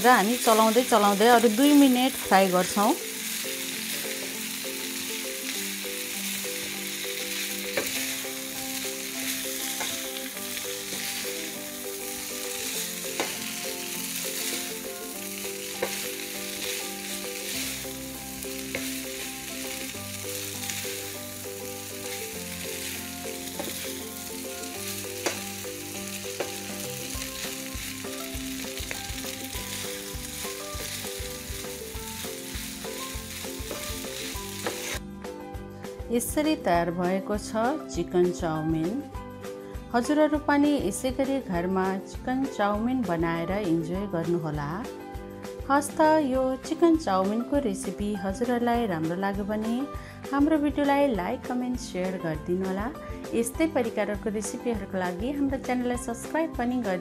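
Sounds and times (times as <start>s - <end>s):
food sizzling in a hot pan: 0.0s - 35.0s.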